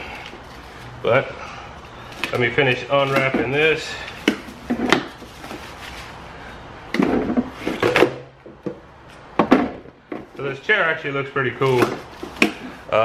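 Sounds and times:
plastic frame clattering: 2.1 - 6.0, 6.9 - 8.8
plastic knocking and rubbing: 4.2 - 5.9, 6.9 - 8.8.

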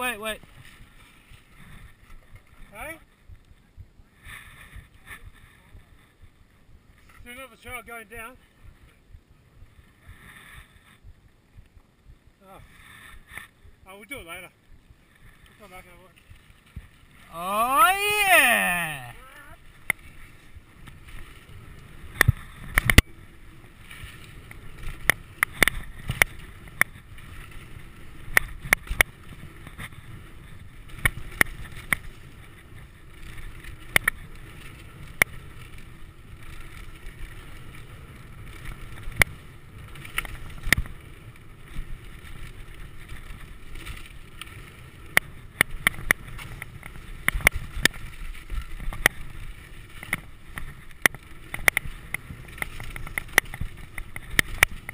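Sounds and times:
wind on microphone: 0.2 - 7.2
bike clacking and rattling: 19.5 - 54.9.

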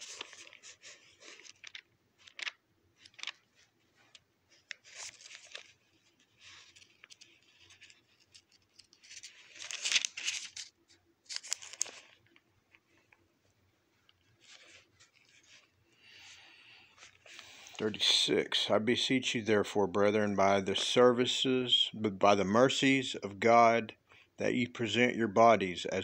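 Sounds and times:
paper pages being turned: 0.0 - 13.3, 14.0 - 18.5.

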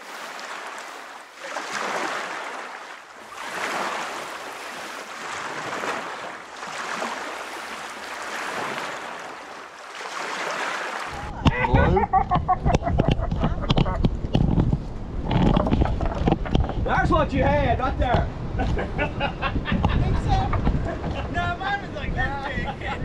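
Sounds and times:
ocean waves washing: 0.0 - 23.0.

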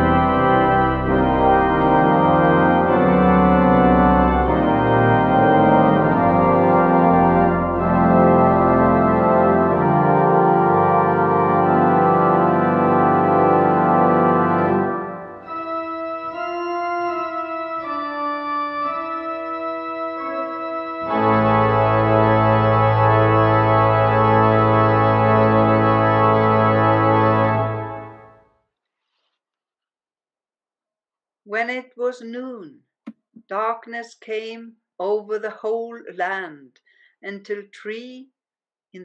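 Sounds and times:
organ chords: 0.0 - 28.4.

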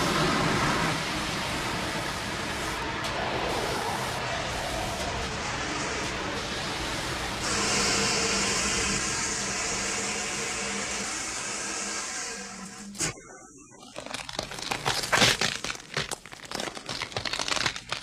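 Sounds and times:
low steady drone: 0.0 - 13.8
fire extinguishers hissing: 3.6 - 13.1.

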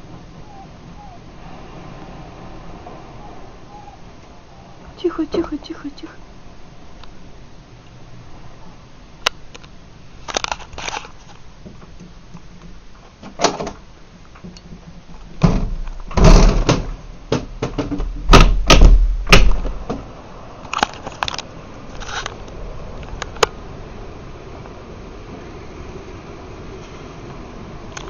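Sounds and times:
loud irregular knocks and bangs: 14.4 - 20.1.

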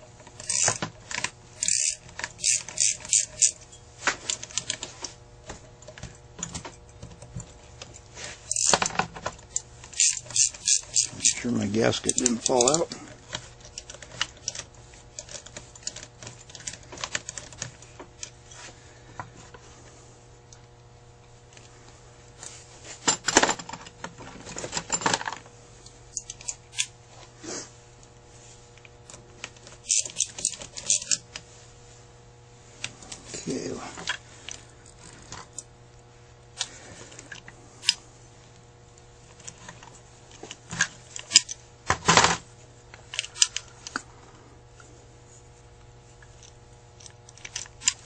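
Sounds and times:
screwdriver clicking on metal parts: 0.2 - 4.9, 5.6 - 18.4, 26.1 - 26.9, 29.1 - 31.2, 40.4 - 41.6, 43.0 - 44.0, 46.3 - 48.0.

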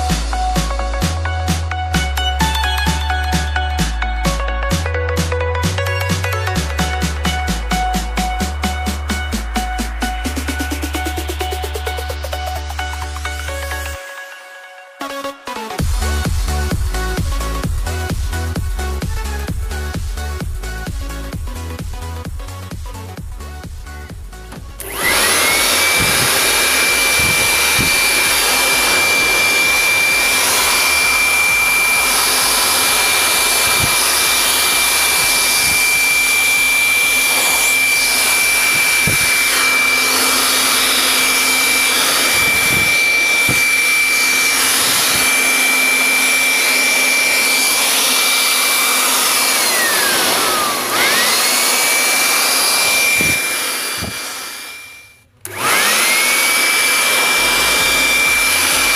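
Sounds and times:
air blower rushing air: 15.8 - 58.9.

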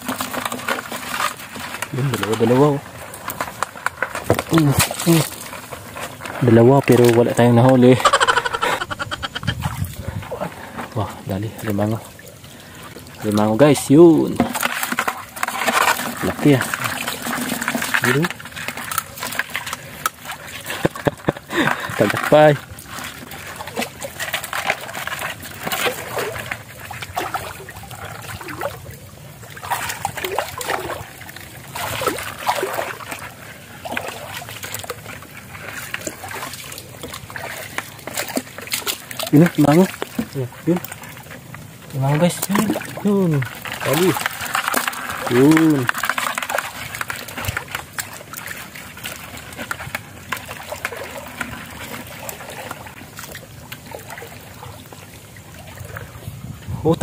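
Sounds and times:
rubber boots wading through water: 14.4 - 56.7.

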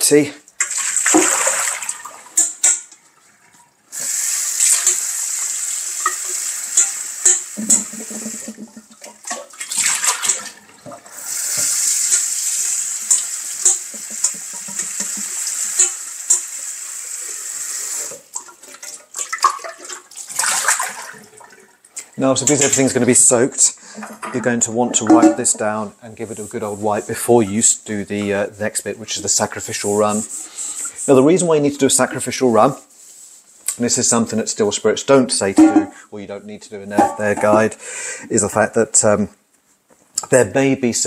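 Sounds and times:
water running from a tap: 4.0 - 10.3, 11.1 - 21.6
metal vessel knocking: 24.3 - 25.6, 35.6 - 35.9.

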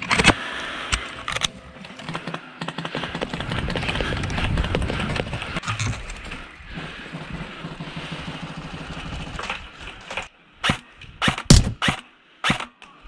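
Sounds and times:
airsoft rifle rapid fire: 10.7 - 12.6.

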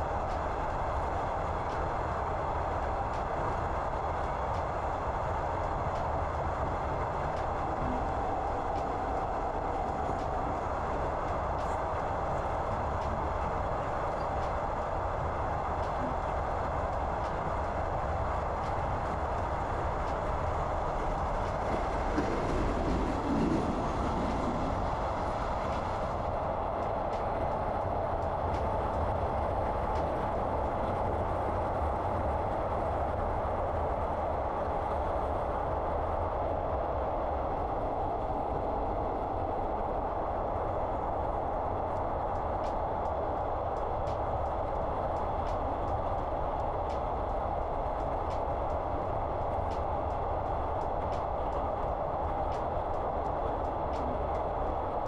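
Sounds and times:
train rumble and hum inside carriage: 0.0 - 55.0
faint light ticks: 0.2 - 2.0, 4.2 - 4.8, 7.3 - 9.2, 26.8 - 30.3, 41.8 - 55.0.

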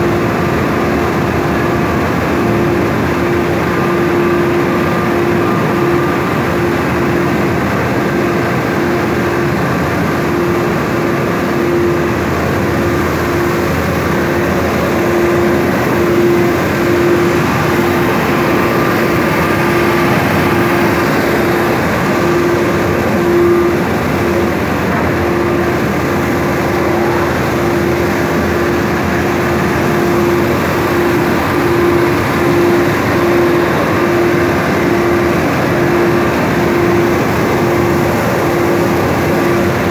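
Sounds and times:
mill machinery droning: 0.0 - 39.9.

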